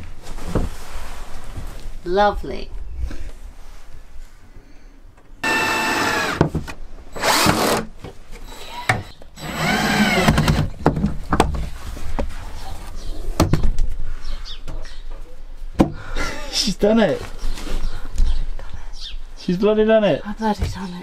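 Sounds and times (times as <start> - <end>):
cordless drill whining: 5.4 - 6.4, 7.1 - 10.8.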